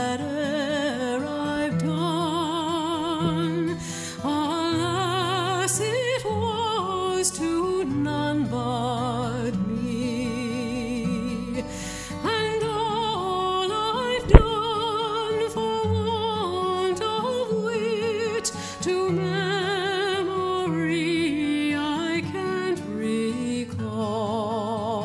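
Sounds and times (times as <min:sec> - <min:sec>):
sharp click: 0:14.2 - 0:14.6.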